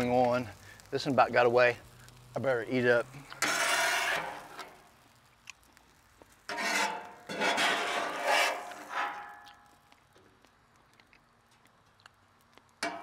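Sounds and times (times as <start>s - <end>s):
metal spatula scraping griddle: 2.8s - 4.9s, 6.4s - 9.7s.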